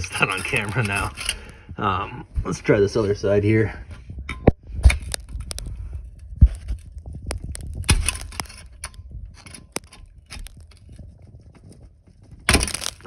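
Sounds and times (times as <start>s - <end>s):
pry bar scraping metal: 0.0s - 1.5s.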